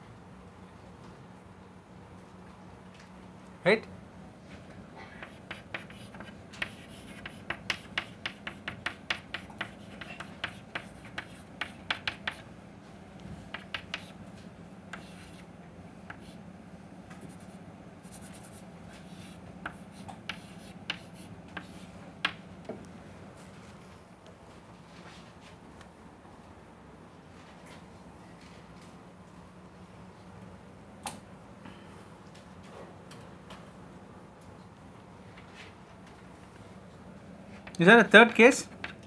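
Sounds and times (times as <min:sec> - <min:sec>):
steady low hum: 0:00.0 - 0:39.0
chalk tapping and scratching: 0:05.1 - 0:12.5, 0:13.5 - 0:14.2, 0:14.9 - 0:15.5, 0:16.1 - 0:16.4, 0:17.1 - 0:22.4, 0:38.8 - 0:39.0.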